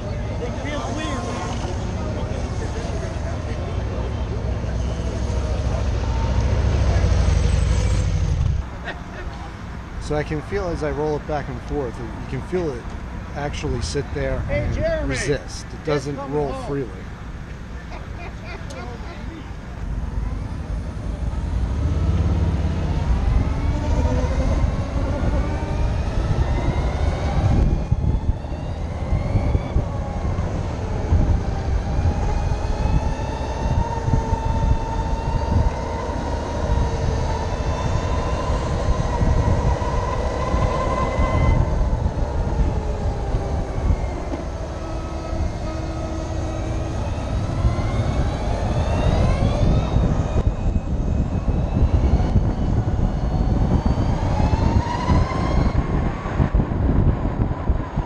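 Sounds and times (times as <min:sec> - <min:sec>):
wind rumble on microphone: 0:19.7 - 0:58.0.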